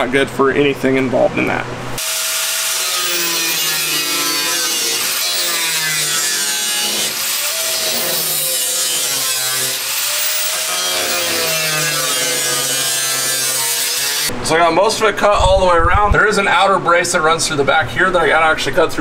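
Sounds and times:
cut-off wheel rasping through steel: 2.0 - 14.3
power tool motor: 2.0 - 14.3.

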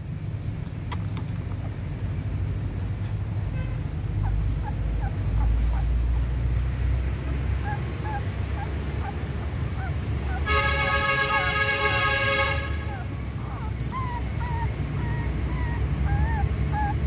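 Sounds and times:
puppies whimpering: 4.0 - 11.5, 12.8 - 17.0.

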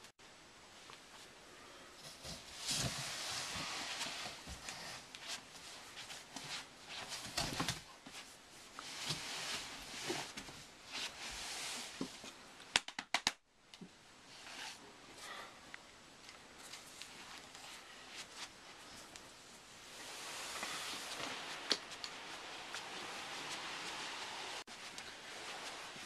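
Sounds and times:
clothing rustling: 2.0 - 12.5, 16.3 - 26.0.

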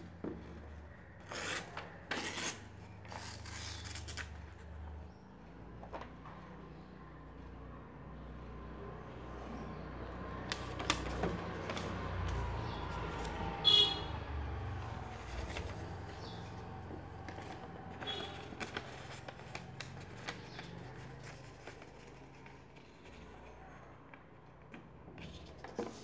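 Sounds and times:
paper crackling and creasing: 10.4 - 13.5, 15.0 - 23.5.

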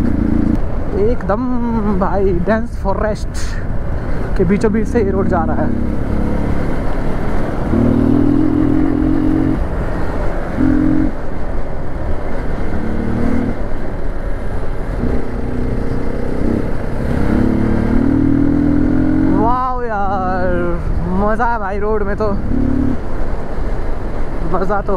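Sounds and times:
motorcycle engine revving: 0.0 - 0.7, 4.8 - 11.2, 12.4 - 13.6, 14.9 - 20.6, 22.2 - 23.1.

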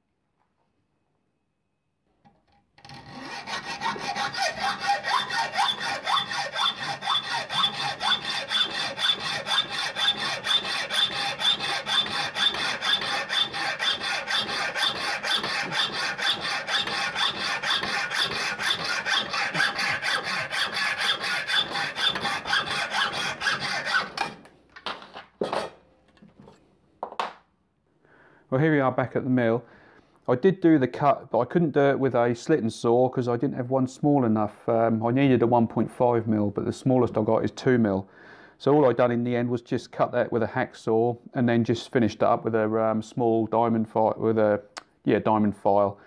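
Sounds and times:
hacksaw cutting metal: 2.8 - 24.5.

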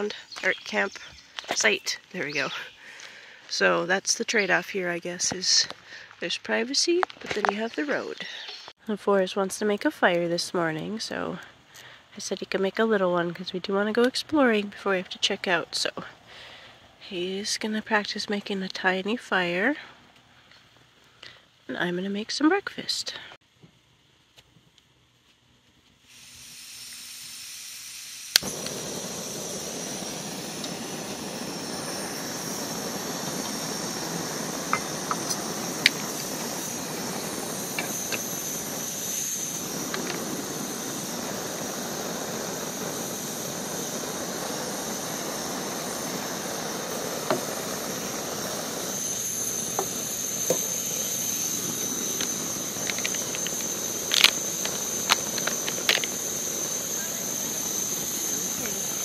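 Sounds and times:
camp stove burner hissing: 26.0 - 59.0.

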